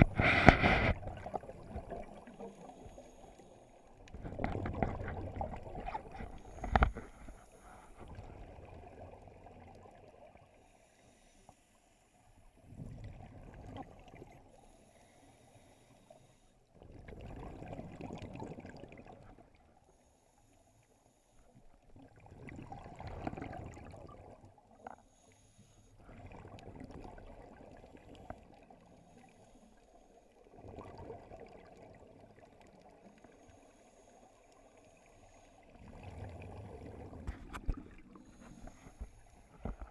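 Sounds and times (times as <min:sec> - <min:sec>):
bubbles gurgling underwater: 0:00.0 - 0:02.8, 0:04.1 - 0:06.9, 0:16.8 - 0:19.5, 0:21.9 - 0:24.5, 0:26.1 - 0:28.8, 0:30.5 - 0:33.0, 0:35.7 - 0:38.4.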